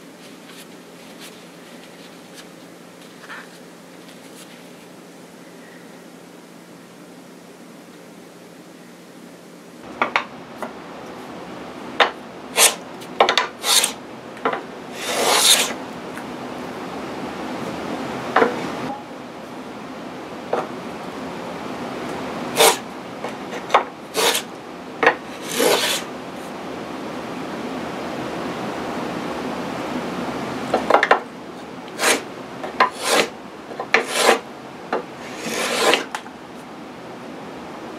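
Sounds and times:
edge plane scraping hardwood: 12.5s - 14.0s, 14.9s - 15.8s, 22.5s - 26.1s, 31.9s - 36.2s.

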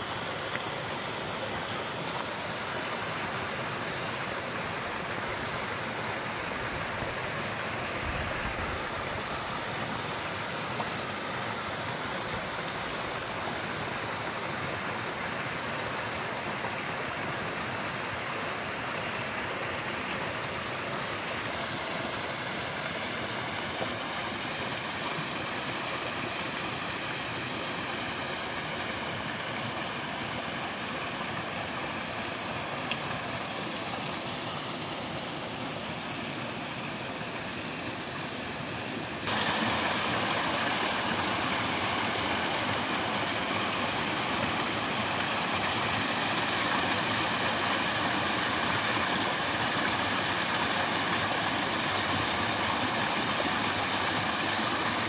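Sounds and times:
water pouring over rocks: 39.2s - 55.0s.

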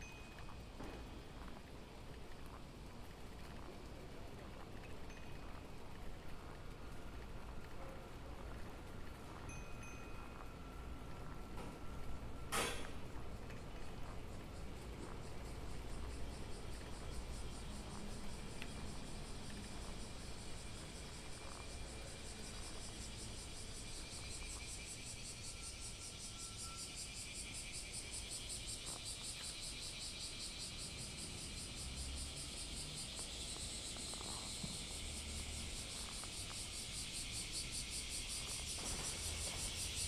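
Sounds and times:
bicycle rumbling: 0.0s - 26.2s
insects chirring: 0.0s - 40.0s.

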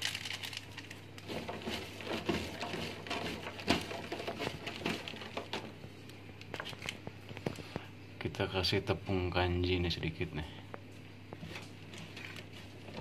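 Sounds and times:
dried fish rustling in colander: 0.0s - 5.8s.

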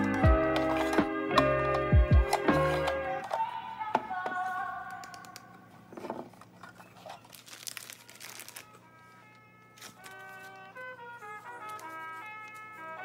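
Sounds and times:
soft background music: 0.0s - 13.0s
plastic bag crinkling: 5.9s - 12.7s.

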